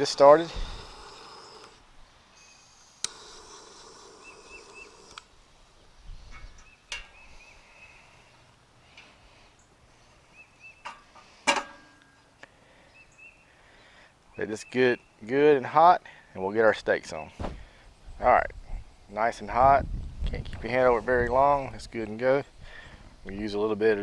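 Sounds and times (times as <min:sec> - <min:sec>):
torch lighter hissing: 0:00.0 - 0:05.4
faint bird chirps: 0:02.3 - 0:05.2, 0:06.0 - 0:08.5, 0:09.4 - 0:11.1, 0:12.1 - 0:15.3
metal grill grate clanking: 0:10.8 - 0:12.0.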